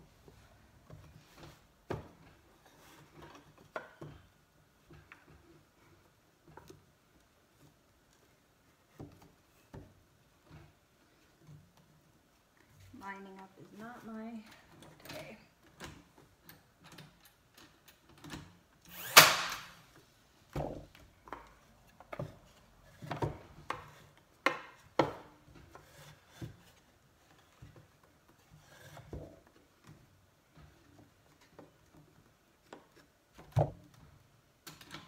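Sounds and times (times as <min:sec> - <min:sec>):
nail gun shot: 0:19.0 - 0:19.8.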